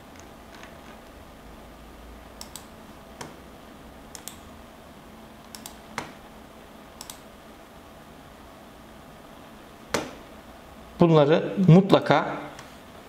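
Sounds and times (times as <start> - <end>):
computer mouse button clicks: 2.4 - 3.4, 5.5 - 6.1, 7.0 - 7.2.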